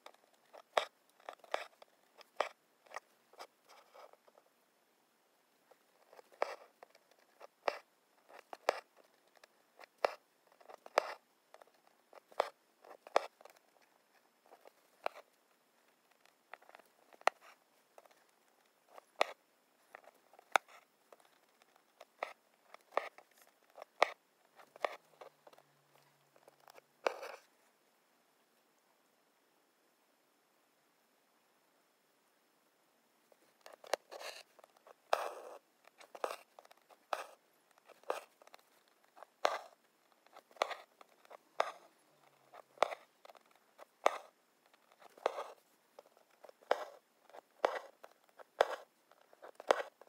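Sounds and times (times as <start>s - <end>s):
thread rasping through fabric: 0.0s - 4.4s, 5.7s - 27.5s, 33.3s - 50.0s.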